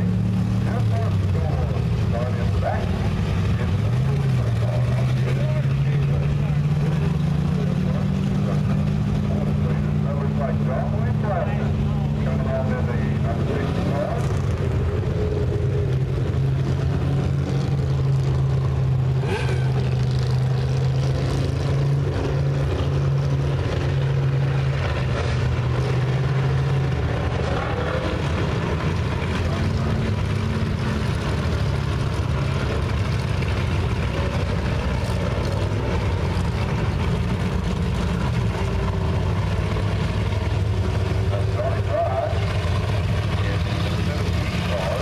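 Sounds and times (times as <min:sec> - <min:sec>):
race car engines droning: 0:00.0 - 0:45.0.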